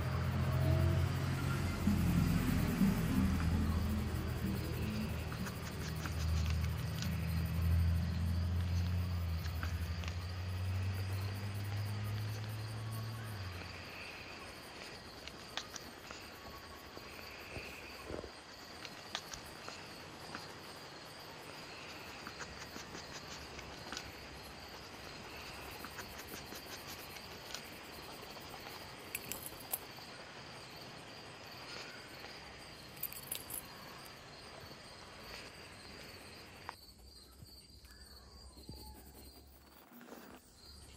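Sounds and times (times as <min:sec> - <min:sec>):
low hum: 0:00.0 - 0:14.2
insect-like chirping: 0:00.0 - 0:40.9.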